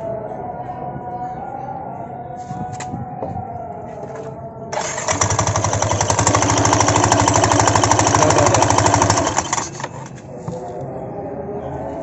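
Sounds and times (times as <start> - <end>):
scooter engine running: 4.7 - 10.2
pulley rattling clatter: 4.8 - 10.2.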